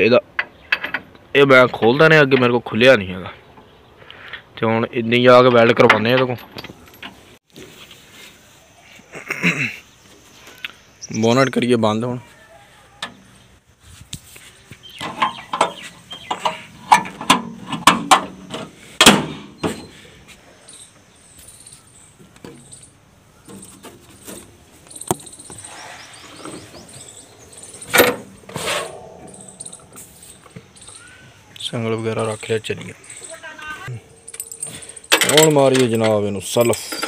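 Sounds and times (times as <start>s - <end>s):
metal chain and tools clanking: 6.0s - 7.3s, 20.7s - 31.1s, 33.0s - 37.0s.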